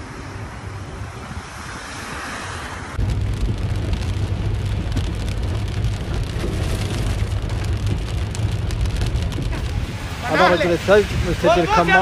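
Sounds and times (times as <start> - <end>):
car interior rumble: 3.0 - 12.0
hail ticking on car: 3.0 - 12.0.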